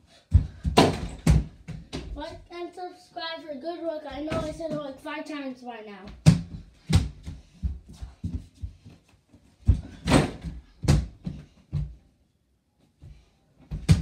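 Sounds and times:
ball thumping against hoop and door: 0:00.3 - 0:02.2, 0:09.7 - 0:11.9.

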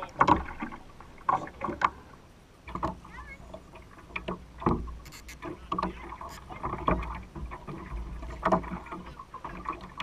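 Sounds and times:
waves slapping against metal boat: 0:00.0 - 0:10.0.

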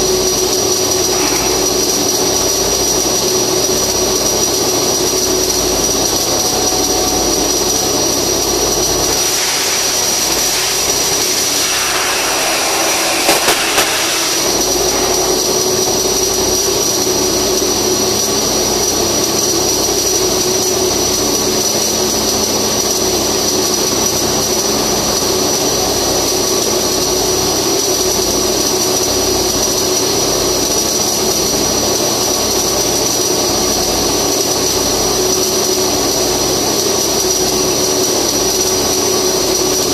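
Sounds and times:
high whine: 0:00.0 - 0:18.1
welding arc hissing: 0:00.0 - 0:18.6.

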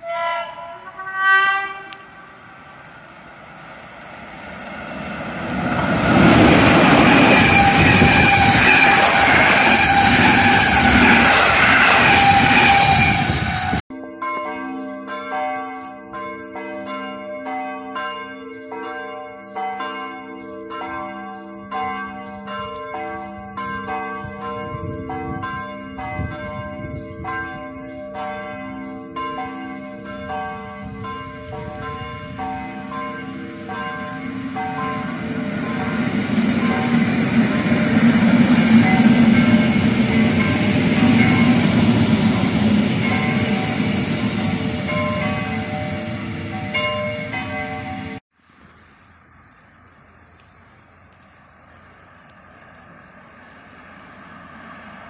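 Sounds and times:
passenger train passing at speed: 0:00.0 - 0:13.8, 0:23.8 - 0:27.6, 0:28.3 - 0:48.2, 0:52.2 - 0:55.0
train wheels running on rails: 0:01.5 - 0:13.8, 0:29.3 - 0:48.2
bells ringing: 0:13.9 - 0:36.0, 0:38.8 - 0:48.2.

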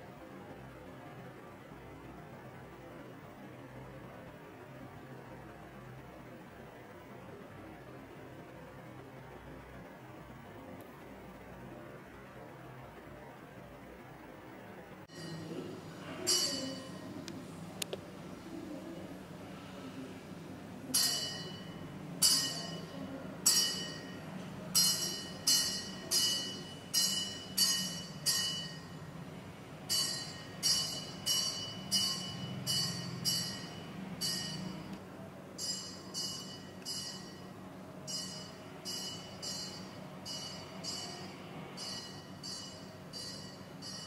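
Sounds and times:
low steady hum: 0:00.0 - 0:44.0
metallic strikes ringing: 0:15.1 - 0:17.3, 0:20.9 - 0:29.1, 0:29.9 - 0:35.0, 0:35.6 - 0:44.0.

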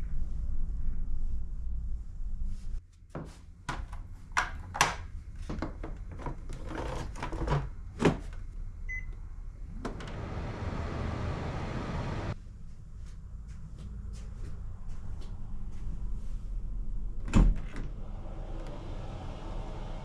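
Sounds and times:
fan running with whoosh: 0:09.7 - 0:12.4, 0:17.8 - 0:20.0.

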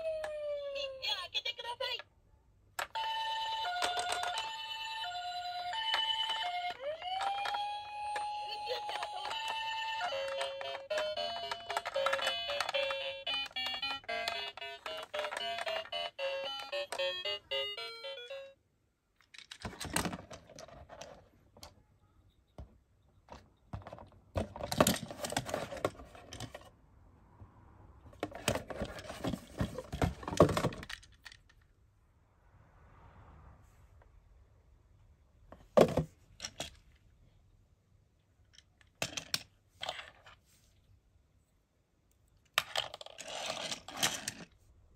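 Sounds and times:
plastic toys and packaging handled: 0:02.7 - 0:18.5, 0:19.1 - 0:26.8, 0:28.1 - 0:31.8, 0:35.5 - 0:37.2, 0:38.2 - 0:41.0, 0:42.1 - 0:44.7
electronic toy beeping melody: 0:02.9 - 0:18.6.

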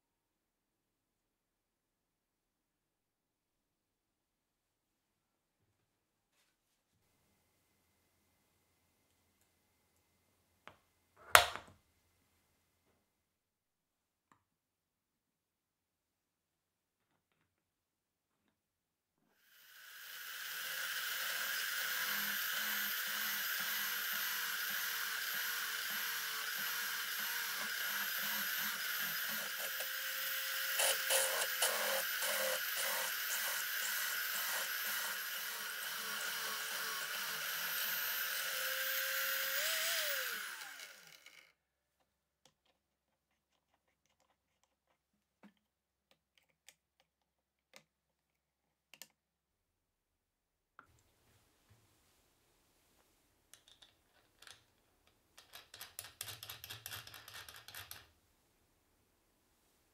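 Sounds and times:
drill bit chatter on metal: 0:19.5 - 0:41.4
drill press motor running: 0:19.7 - 0:41.4.

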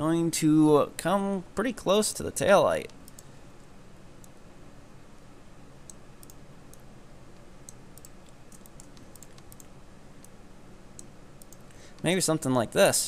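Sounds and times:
steady low hum: 0:00.0 - 0:13.0
keyboard and mouse clicks: 0:05.8 - 0:06.8, 0:07.6 - 0:10.4, 0:11.0 - 0:12.1.

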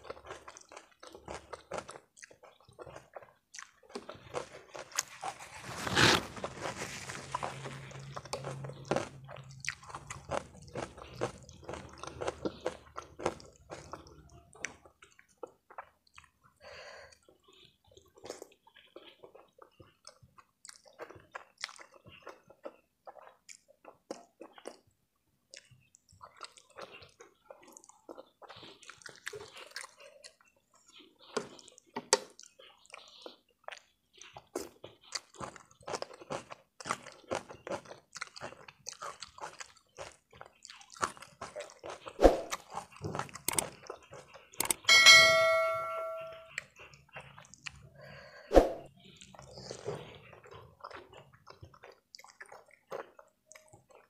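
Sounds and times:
slurping and chewing noodles: 0:00.0 - 0:44.9, 0:46.5 - 0:54.0
bell-like ring: 0:44.9 - 0:46.5.

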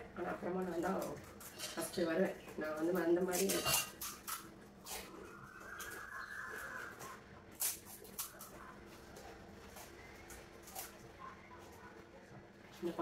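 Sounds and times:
puri shells cracking: 0:07.5 - 0:08.6.

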